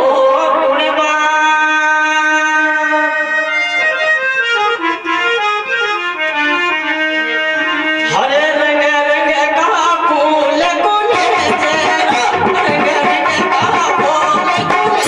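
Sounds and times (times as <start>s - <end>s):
man singing: 0.0s - 3.6s, 8.0s - 15.0s
harmonium melody: 0.0s - 15.0s.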